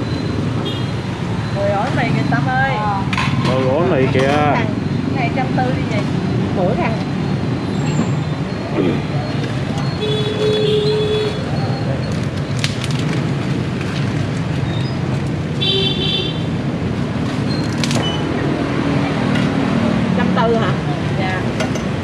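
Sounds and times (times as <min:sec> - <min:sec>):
traffic and engine noise: 0:00.0 - 0:22.0
voices: 0:01.4 - 0:12.4, 0:18.1 - 0:21.6.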